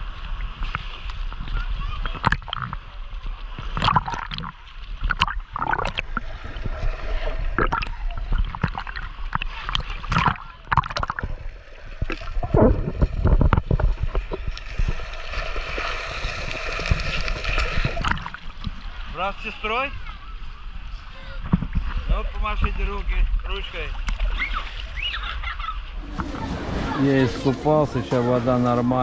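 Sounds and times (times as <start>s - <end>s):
underwater gurgling: 0.0s - 19.2s, 25.8s - 29.0s
sea water splashing: 0.0s - 29.0s.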